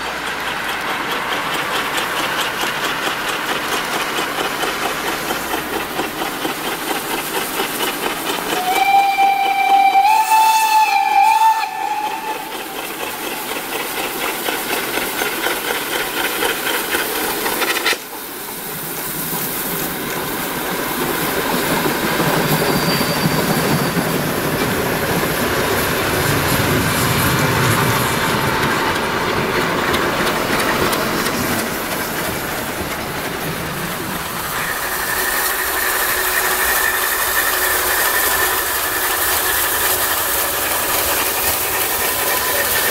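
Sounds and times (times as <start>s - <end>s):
steam locomotive exhaust chuff: 0.0s - 42.9s
train wheels rumbling and clattering: 0.0s - 42.9s
steam whistle: 8.5s - 12.5s.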